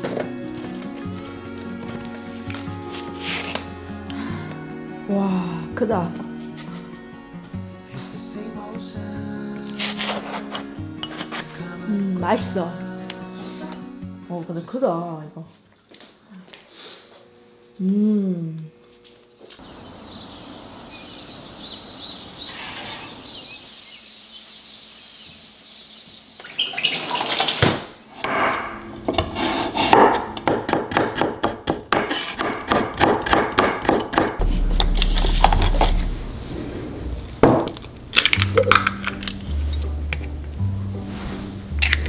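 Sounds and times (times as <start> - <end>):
birds chirping: 19.3 - 27.7
knife chopping on cutting board: 28.4 - 34.4
music with low bass notes: 34.4 - 42.0.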